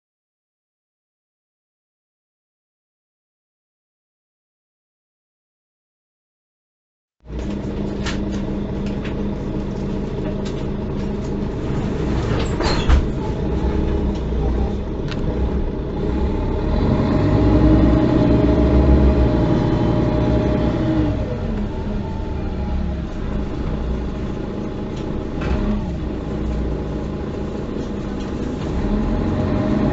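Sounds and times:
bus diesel engine: 0:07.3 - 0:29.9.

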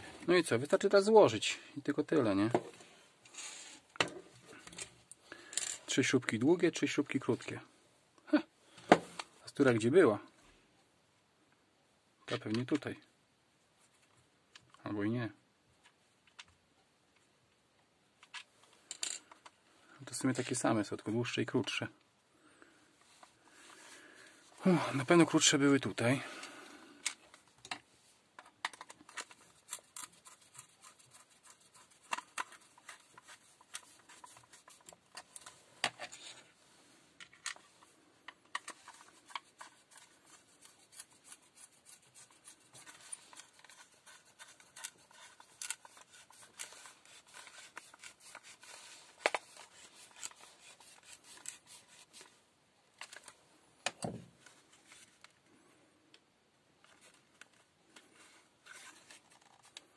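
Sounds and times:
screwdriver turning screws in plastic: 0:28.4 - 0:36.3, 0:37.3 - 0:52.3
plastic case rubbing and clicking: 0:28.4 - 0:36.5, 0:37.2 - 0:52.4.

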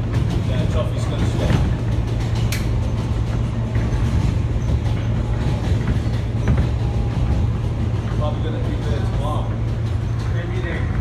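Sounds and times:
subway train rumbling on rails: 0:00.0 - 0:11.0
sharp click: 0:02.5 - 0:02.7.

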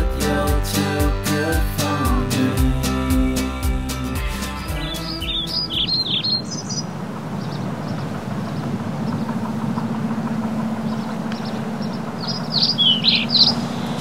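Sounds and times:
faint bird chirps: 0:04.7 - 0:14.0
low mechanical hum: 0:05.1 - 0:14.0.

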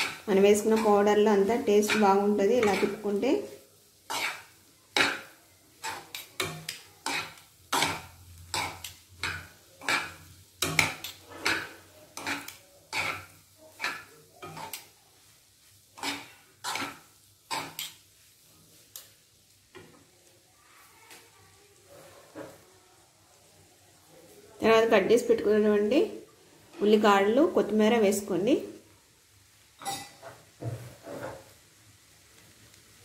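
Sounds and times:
steel spoons scraping a wok: 0:00.0 - 0:14.9, 0:15.9 - 0:18.1, 0:29.8 - 0:30.4.

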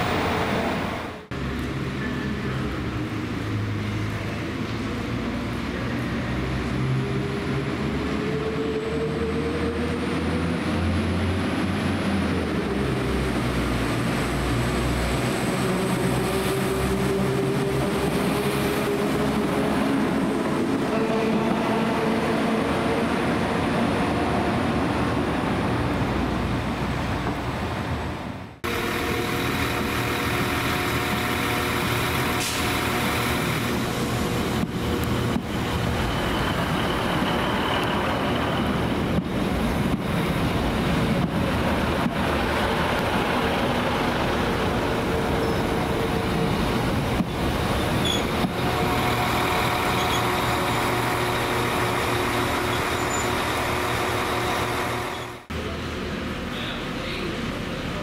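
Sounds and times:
train rumble with whine: 0:00.0 - 0:58.0.

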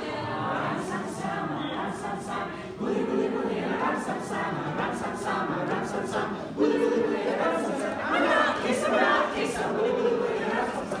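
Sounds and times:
group singing held notes: 0:00.0 - 0:11.0.

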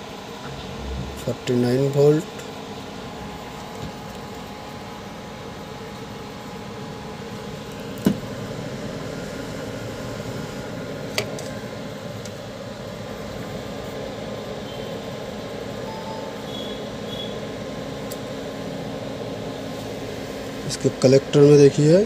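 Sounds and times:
steady background noise: 0:00.0 - 0:22.0.

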